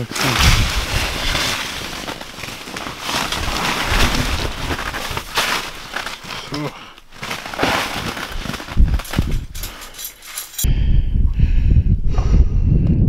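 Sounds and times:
wind buffeting microphone: 0:00.4 - 0:01.4, 0:08.6 - 0:09.8, 0:10.6 - 0:13.0.

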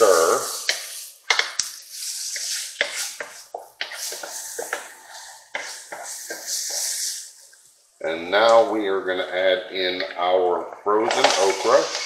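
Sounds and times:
vegetables sizzling: 0:00.0 - 0:07.5
wooden spoon scraping a pan: 0:00.0 - 0:07.5.

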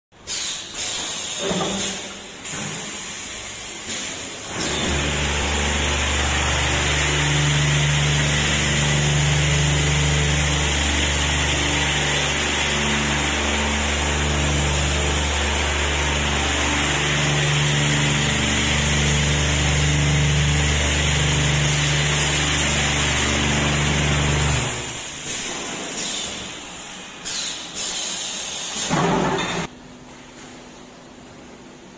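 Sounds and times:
machine motor hum: 0:04.4 - 0:26.1.

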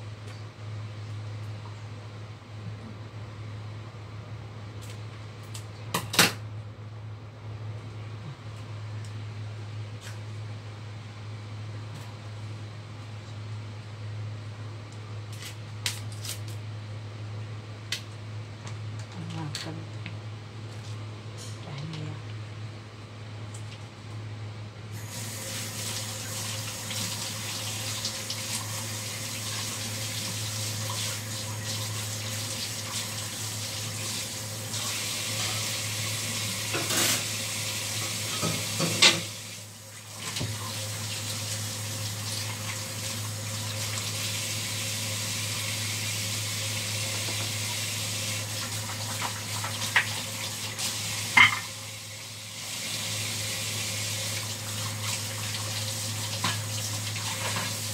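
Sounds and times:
tap water running into sink: 0:25.1 - 0:51.8, 0:52.6 - 0:57.9.

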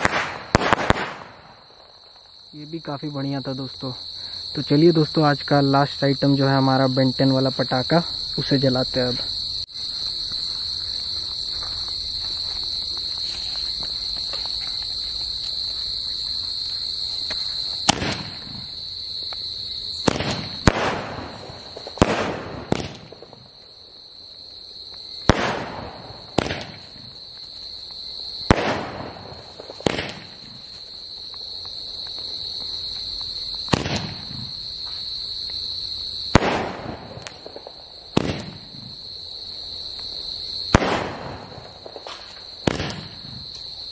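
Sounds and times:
firework shots popping: 0:00.0 - 0:02.3, 0:17.3 - 0:23.6, 0:25.2 - 0:27.2, 0:28.4 - 0:30.7, 0:33.2 - 0:34.6, 0:36.3 - 0:39.0, 0:40.6 - 0:43.8
crickets chirring: 0:00.0 - 0:43.9.

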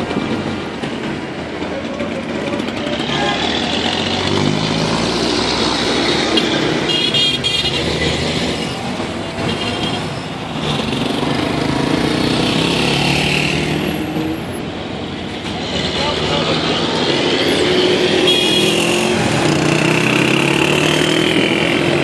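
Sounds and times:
traffic engines: 0:00.0 - 0:22.0
car horns: 0:06.3 - 0:08.2, 0:09.4 - 0:11.0, 0:17.4 - 0:19.2.

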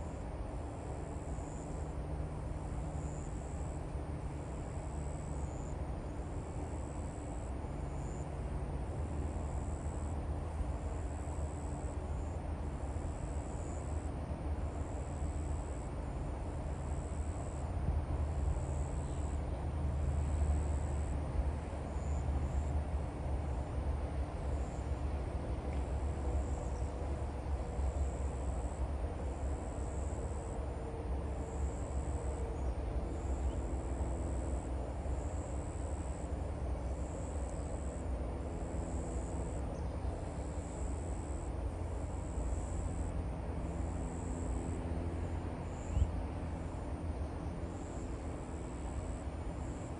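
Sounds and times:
insects calling in pulses: 0:06.5 - 0:08.4, 0:09.3 - 0:14.1, 0:18.3 - 0:23.6, 0:24.4 - 0:25.0, 0:26.2 - 0:38.1, 0:38.7 - 0:44.8, 0:45.6 - 0:49.9.

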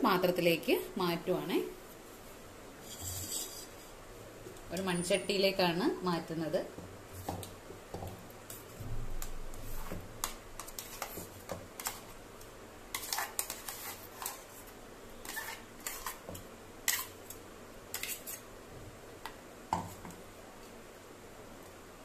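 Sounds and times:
metal spoon scraping steel jar: 0:02.8 - 0:03.7.

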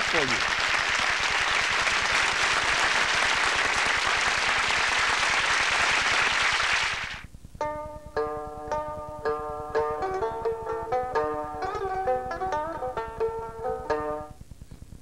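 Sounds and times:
applause: 0:00.0 - 0:07.2
plucked-string music: 0:07.6 - 0:14.4.

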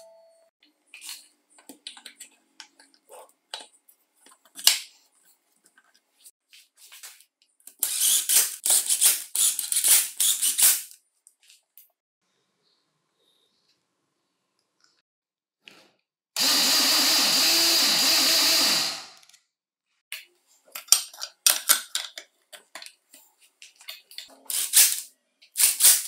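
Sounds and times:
screwdriver driving screws: 0:07.8 - 0:10.8, 0:16.4 - 0:19.2.

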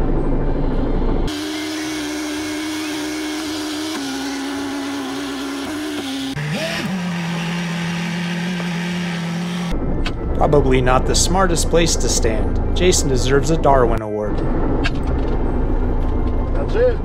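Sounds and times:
boat engine running: 0:01.3 - 0:09.8.

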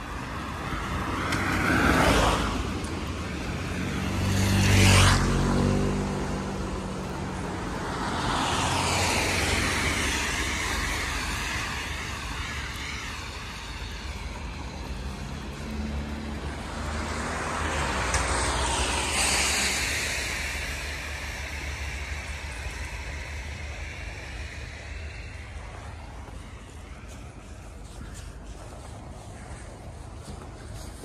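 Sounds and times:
tyres hissing on wet asphalt: 0:00.0 - 0:31.0
car swishing past: 0:03.6 - 0:13.0, 0:13.9 - 0:27.0.

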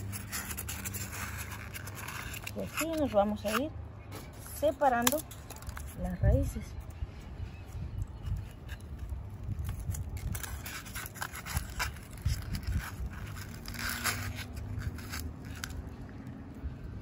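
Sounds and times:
hands scraping dry roots and foam: 0:00.0 - 0:06.9, 0:08.0 - 0:16.0.

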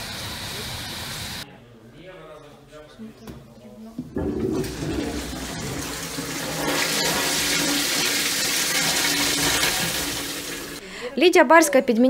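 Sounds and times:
toilet flush water rushing: 0:04.0 - 0:10.8.

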